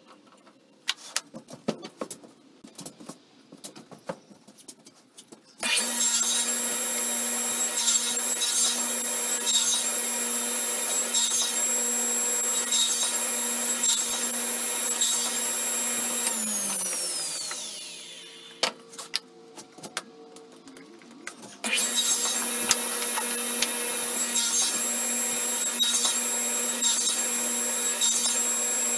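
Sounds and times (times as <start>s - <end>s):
table saw whining: 5.6s - 18.7s, 21.6s - 28.9s
saw blade spinning down: 13.4s - 18.6s.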